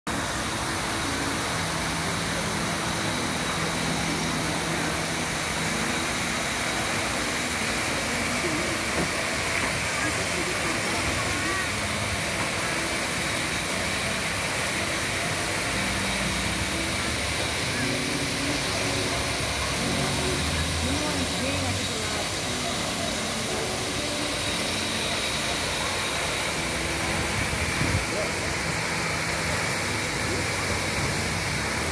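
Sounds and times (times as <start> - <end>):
fountain water spray falling: 0.1 - 31.9.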